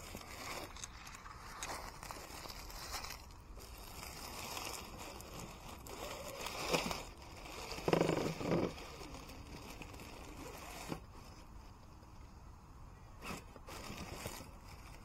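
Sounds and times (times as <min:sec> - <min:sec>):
toy car motor whirring: 0:04.9 - 0:11.1.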